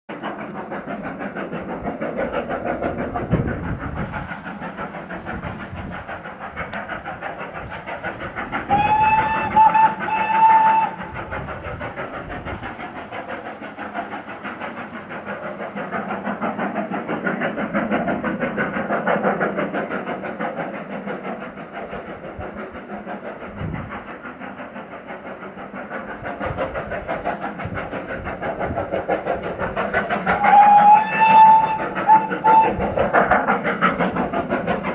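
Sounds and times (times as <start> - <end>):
steam locomotive exhaust beating: 0.1 - 34.9
steam whistle blasts: 8.7 - 11.0, 30.4 - 32.8.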